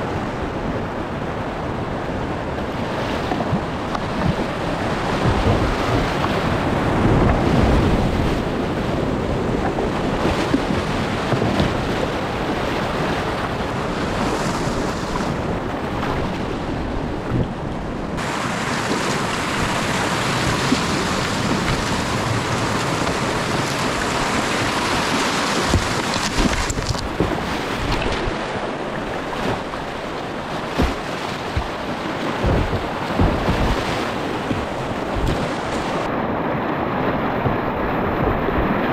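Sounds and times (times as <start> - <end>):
paddle splashes and knocks: 2.5 - 16.5, 18.2 - 36.1
whitewater rushing: 18.1 - 38.9.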